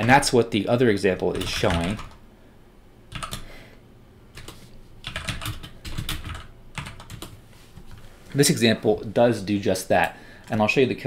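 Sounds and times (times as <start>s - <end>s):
keyboard typing: 1.3s - 2.2s, 3.1s - 3.5s, 4.3s - 8.0s.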